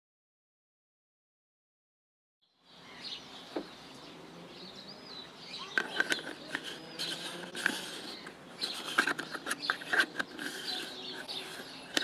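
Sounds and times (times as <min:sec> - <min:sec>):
birds chirping: 0:02.4 - 0:12.0
lens filter clicks and scrapes: 0:05.6 - 0:12.0.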